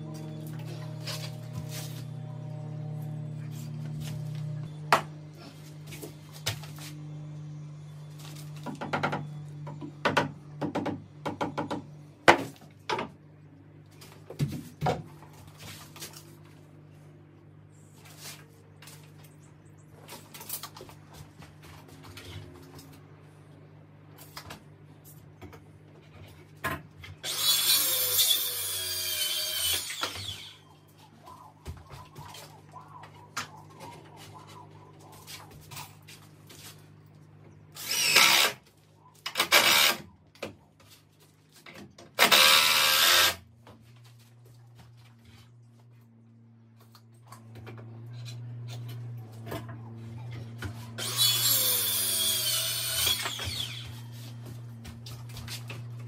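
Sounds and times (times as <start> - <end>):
low steady hum: 0.0 - 27.3, 27.9 - 56.0
power tool running: 27.2 - 30.6, 37.8 - 38.6, 39.3 - 40.0, 42.2 - 43.4, 50.5 - 54.8.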